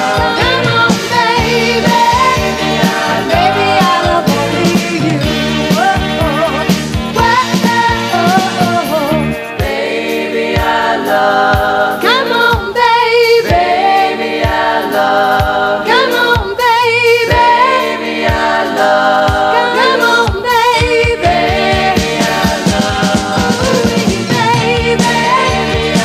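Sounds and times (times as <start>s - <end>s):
woman singing lead: 0.0s - 9.8s, 11.9s - 14.8s, 15.8s - 18.4s, 19.2s - 26.0s
backing vocal harmonies: 0.0s - 26.0s
steady drum beat: 0.0s - 26.0s.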